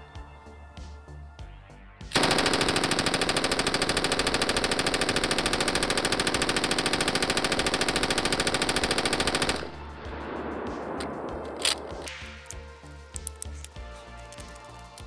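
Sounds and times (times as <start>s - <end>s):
machine gun full-auto burst: 2.2s - 9.8s.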